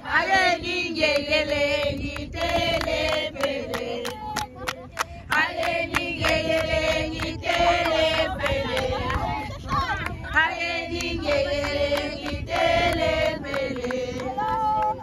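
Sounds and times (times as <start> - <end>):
group chanting and singing: 0.0 - 15.0.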